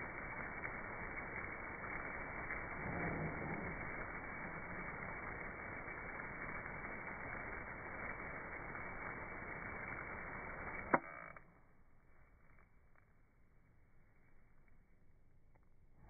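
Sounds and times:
garden hose spraying water: 0.0s - 11.0s.

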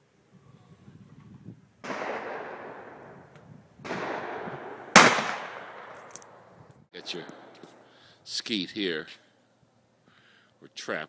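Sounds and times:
shotgun shots echoing: 1.8s - 7.8s.

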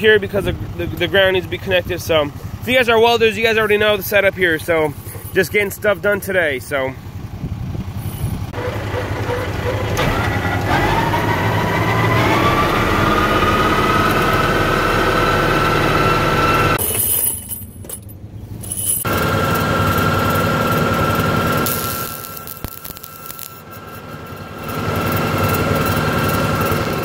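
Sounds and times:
tractor engine: 0.0s - 27.0s
generator whine rising: 8.4s - 16.8s, 19.1s - 27.0s.

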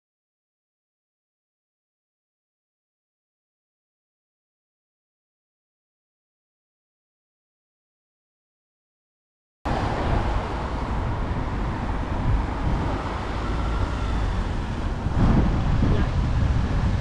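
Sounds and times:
road traffic noise: 9.7s - 17.0s
wind buffeting microphone: 9.7s - 17.0s.

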